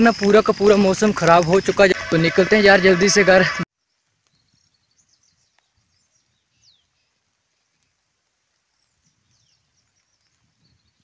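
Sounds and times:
faint bird chirps: 3.8s - 8.0s.

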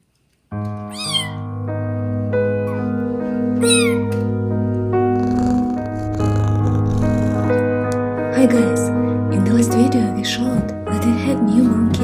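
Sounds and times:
instrumental music: 0.5s - 12.0s
kitten mewing: 0.9s - 1.4s, 3.6s - 4.1s, 5.2s - 7.6s.

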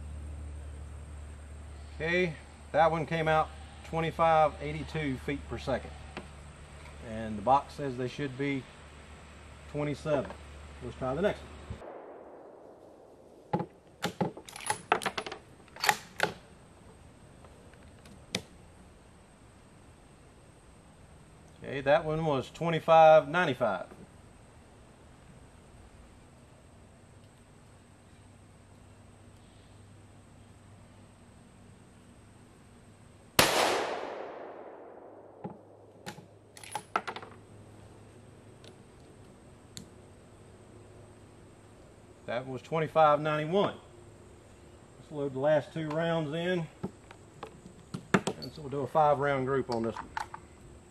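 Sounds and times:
rifle shot echoing: 11.8s - 13.5s, 33.4s - 36.0s.

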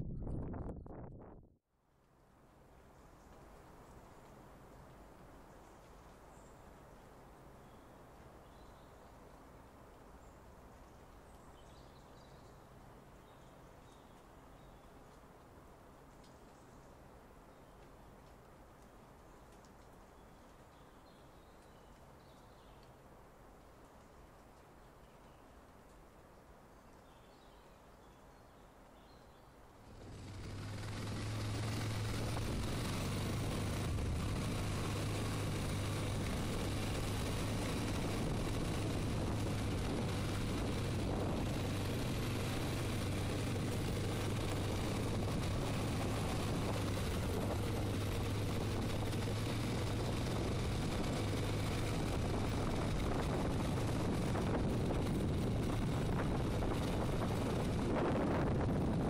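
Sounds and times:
quad bike engine running: 29.8s - 59.0s.

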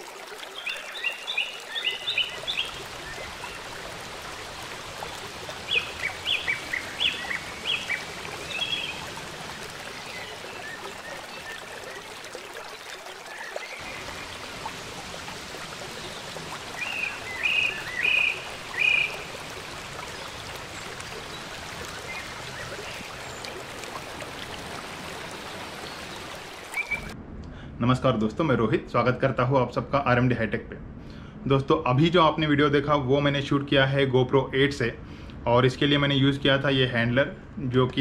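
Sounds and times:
waterfall rushing: 0.0s - 27.2s.

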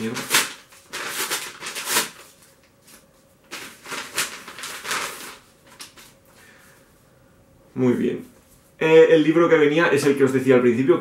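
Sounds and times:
paper envelope tearing and rustling: 0.0s - 6.2s.

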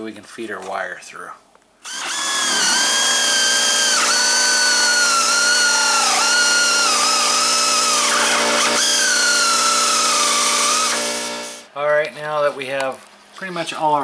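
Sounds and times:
electric drill boring wood: 1.8s - 11.7s.

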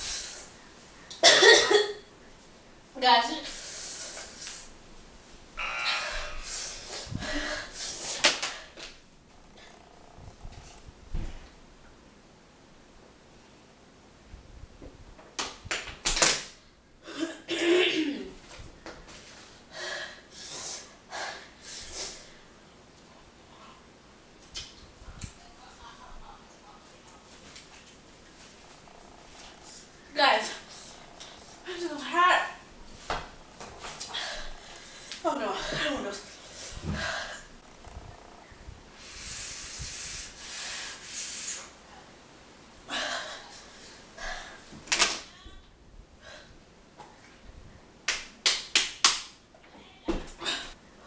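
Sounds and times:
person gasping and panting: 5.6s - 8.1s.

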